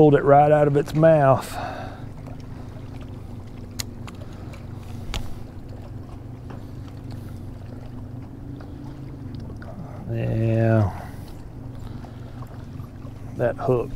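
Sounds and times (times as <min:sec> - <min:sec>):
low motor hum: 0:00.0 - 0:13.9
light clicks: 0:03.7 - 0:05.4.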